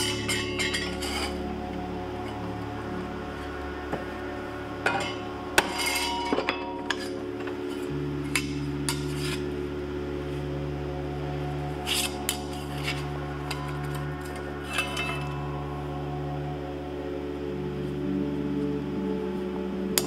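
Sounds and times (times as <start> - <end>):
metal blanks clinking: 0.0 - 1.5, 4.8 - 9.5, 11.8 - 15.6
steel scraping: 0.0 - 2.5, 4.7 - 9.7, 11.6 - 16.2
background music: 0.0 - 20.0.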